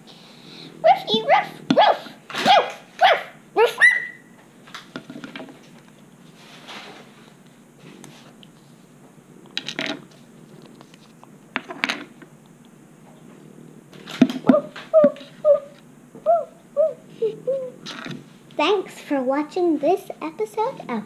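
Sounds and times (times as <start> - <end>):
short high yips: 0.9 - 4.3.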